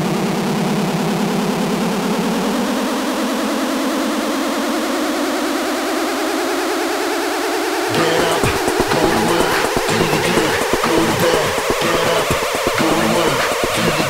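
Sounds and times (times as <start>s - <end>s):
synthesizer build-up rising in pitch: 0.2s - 14.0s
electronic dance track: 7.9s - 14.0s.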